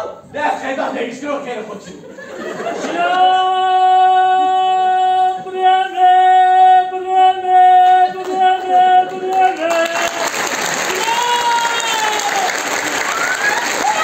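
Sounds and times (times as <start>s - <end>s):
man singing a long high note: 3.0s - 10.2s
audience applause: 9.0s - 14.0s.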